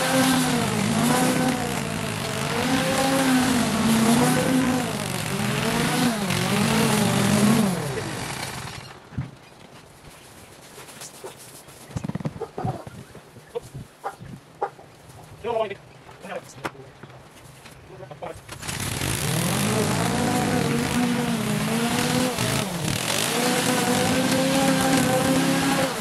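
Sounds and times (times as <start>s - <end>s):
small engine running: 0.0s - 9.0s, 18.5s - 26.0s.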